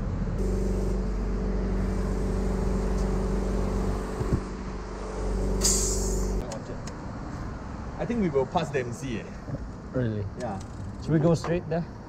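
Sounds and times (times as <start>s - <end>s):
motor humming: 0.4s - 6.4s
short hiss: 5.6s - 6.4s.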